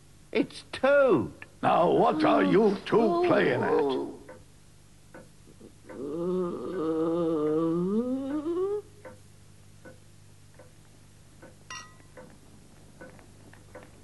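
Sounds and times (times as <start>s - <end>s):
clock ticking: 5.1s - 5.3s, 9.8s - 10.0s, 10.6s - 10.8s, 11.4s - 12.4s
short ringing ping: 11.7s - 12.1s.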